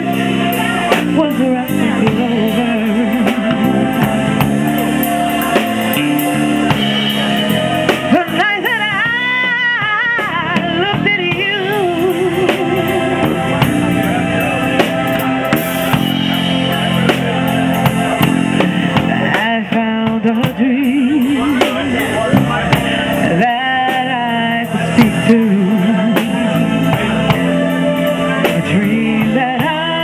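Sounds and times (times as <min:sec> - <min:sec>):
woman singing with vibrato: 0:00.0 - 0:04.3, 0:08.1 - 0:13.6, 0:19.3 - 0:21.4, 0:23.2 - 0:30.0
drum kit and cymbals: 0:00.0 - 0:30.0
electric bass: 0:00.0 - 0:30.0.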